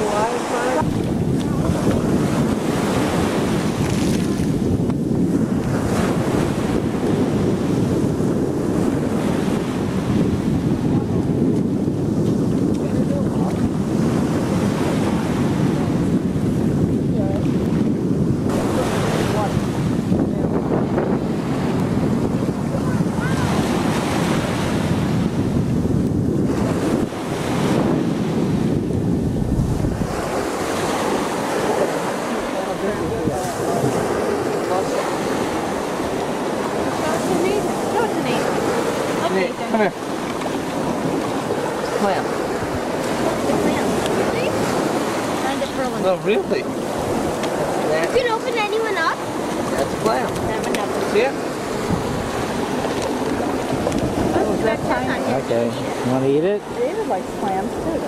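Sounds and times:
small surf washing in: 0.0s - 58.0s
small waves breaking: 0.0s - 58.0s
wind buffeting microphone: 0.0s - 58.0s.

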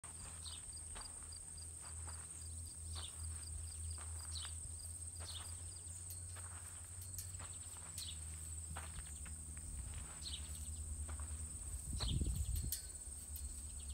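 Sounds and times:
low hum: 0.0s - 13.9s
insects buzzing and chirping: 0.1s - 13.9s.

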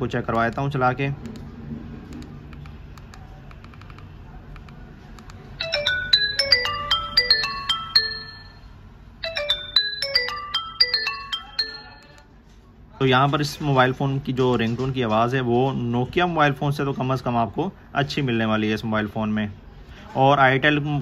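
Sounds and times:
phone ringtone melody: 5.5s - 12.3s.

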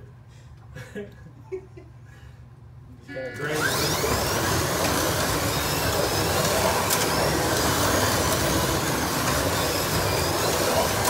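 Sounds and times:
slot cars whirring: 3.2s - 11.0s
rising motor whines: 3.4s - 11.0s.

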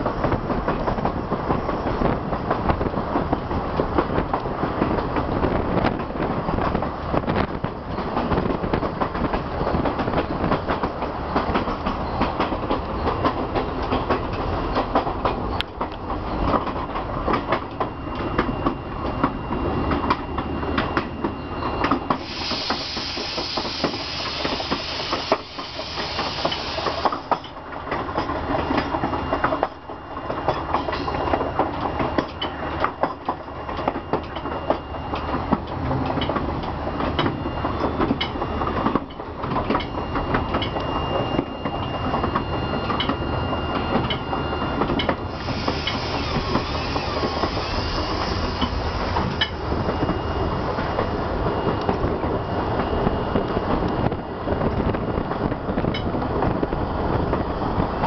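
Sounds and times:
train wheels rumbling on rails: 0.0s - 58.0s
rushing hiss: 22.1s - 27.4s, 45.3s - 49.4s.

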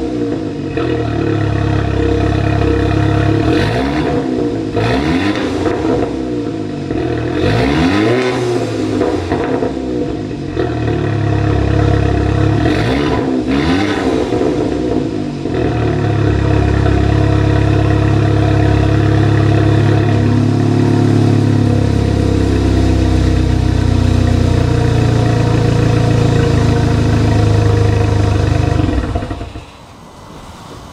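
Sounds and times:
engine rev: 0.0s - 29.9s
loud car exhaust idling: 0.0s - 29.9s.

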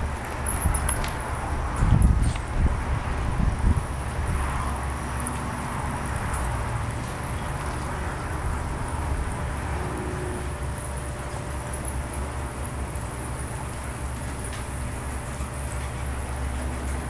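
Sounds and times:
distant traffic rumble: 0.0s - 17.0s.

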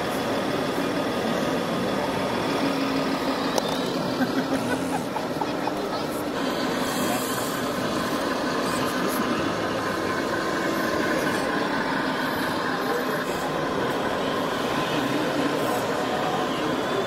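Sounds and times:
murmur of many voices: 0.0s - 17.0s
steady engine-like hum: 0.0s - 17.0s.

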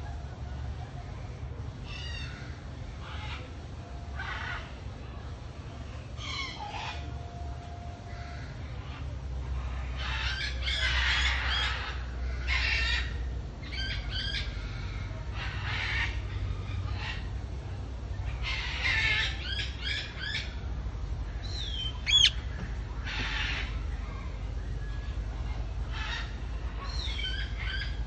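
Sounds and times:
parakeets squawking: 9.6s - 17.3s, 18.3s - 20.5s, 21.5s - 24.3s, 25.4s - 28.0s.

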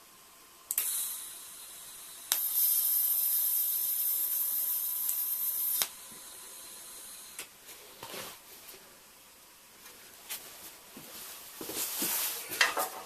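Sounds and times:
welding arc strike click: 0.7s - 1.3s, 2.3s - 6.0s
welding arc hissing: 0.7s - 7.5s.

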